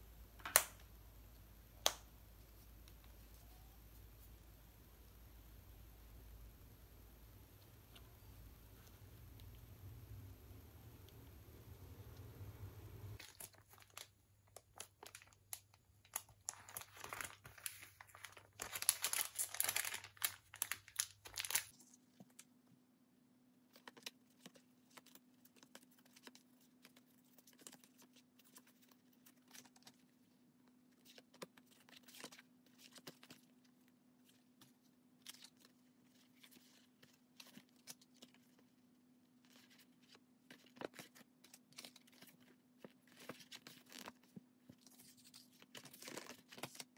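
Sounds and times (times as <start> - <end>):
plastic wrapping crinkling and tearing: 13.2 - 22.0, 39.5 - 46.9.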